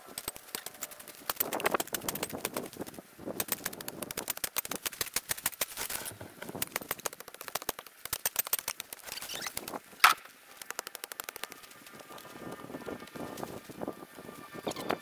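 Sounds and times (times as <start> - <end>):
hand tools cutting brush: 0.0 - 12.5
sharp crack: 3.4 - 11.9.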